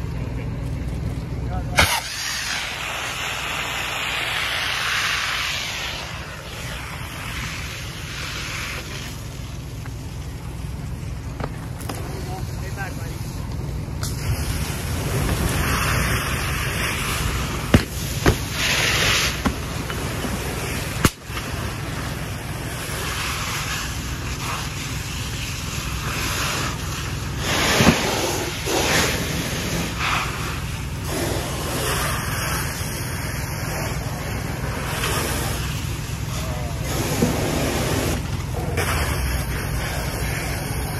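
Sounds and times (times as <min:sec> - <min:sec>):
sharp pops: 0:01.7 - 0:07.6, 0:16.8 - 0:21.7
water spray hissing: 0:01.8 - 0:09.5, 0:14.0 - 0:38.2.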